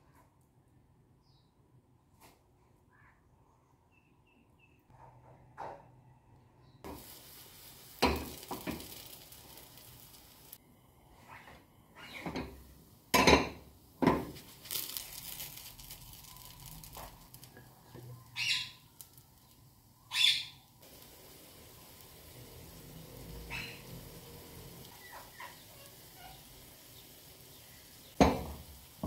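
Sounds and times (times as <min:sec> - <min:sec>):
faint steady hiss: 0:06.8 - 0:29.0
frying pan knocking on metal grate: 0:08.0 - 0:09.0, 0:28.2 - 0:28.7.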